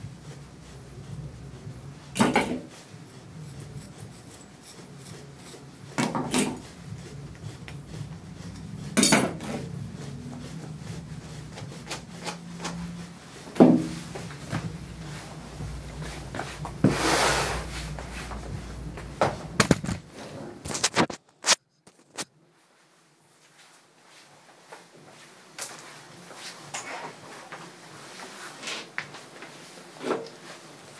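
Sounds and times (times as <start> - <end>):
comb rasping through dog fur: 0.0 - 19.1
faint low hum: 6.5 - 16.9, 17.5 - 19.8
grooming tools clattering on table: 9.0 - 9.6.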